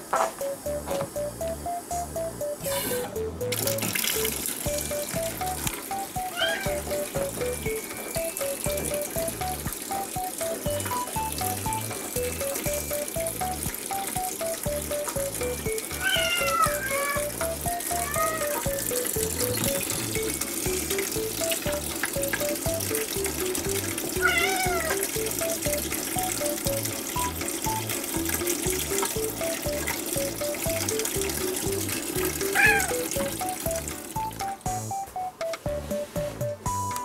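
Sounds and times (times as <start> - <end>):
background music with beat: 0.0 - 37.0
cat meowing: 6.2 - 7.0, 16.0 - 17.3, 17.9 - 18.7, 24.2 - 25.0, 32.5 - 33.1.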